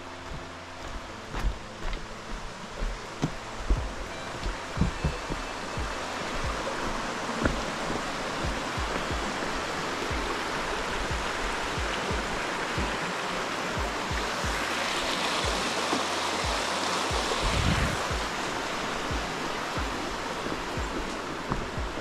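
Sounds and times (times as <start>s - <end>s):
footsteps thudding: 0.2s - 6.7s, 19.1s - 22.0s.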